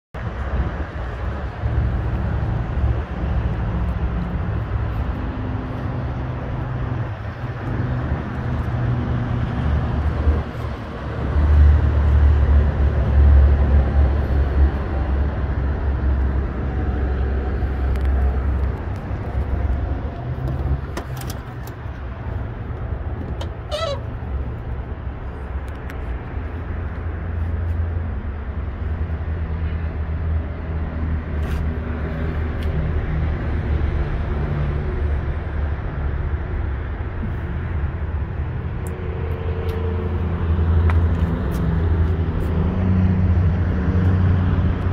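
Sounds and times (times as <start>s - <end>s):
brief high squeal: 23.6s - 24.1s.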